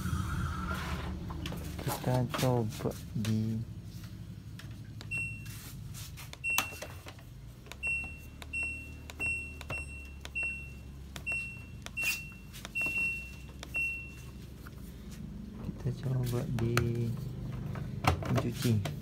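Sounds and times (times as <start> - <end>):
control panel beeping: 5.0 - 5.5, 6.3 - 6.9, 7.7 - 14.4.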